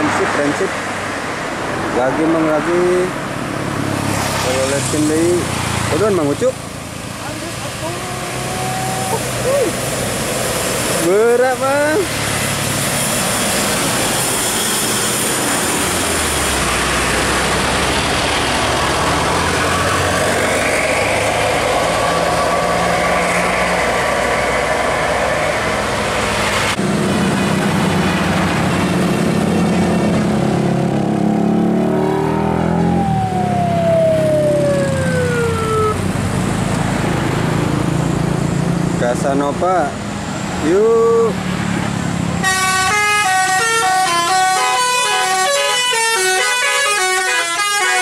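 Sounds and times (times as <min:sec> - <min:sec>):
traffic engine and tyre noise: 0:00.0 - 0:48.0
tone sliding down in pitch: 0:31.1 - 0:36.1.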